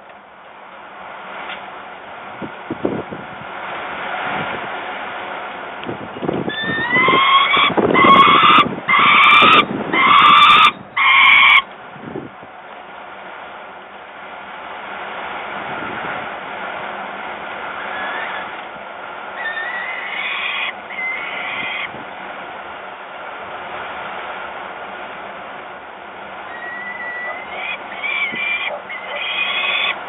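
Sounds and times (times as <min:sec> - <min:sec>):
wind on microphone: 0:02.4 - 0:03.5, 0:04.2 - 0:04.7, 0:05.8 - 0:11.0, 0:11.9 - 0:12.5, 0:15.6 - 0:16.3, 0:21.6 - 0:22.2
falcon chicks begging calls: 0:06.5 - 0:11.7, 0:17.8 - 0:18.5, 0:19.4 - 0:21.9, 0:26.5 - 0:30.0.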